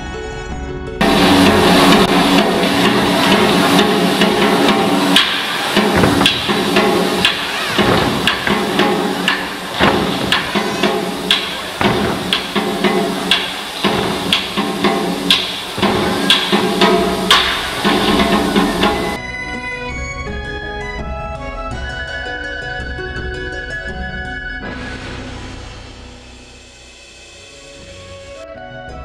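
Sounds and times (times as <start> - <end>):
cymbals clashing: 1.0 - 19.2
drum beats: 1.0 - 19.2.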